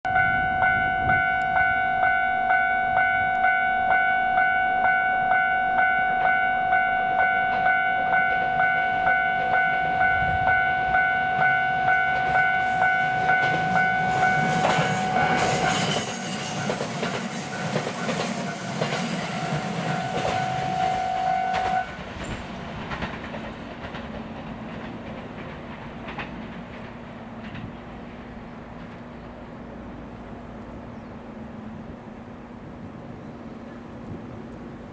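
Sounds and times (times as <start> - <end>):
level crossing warning bell: 0.1 - 22.0
electric train running: 7.6 - 27.8
train wheels clattering over rails: 11.4 - 30.2.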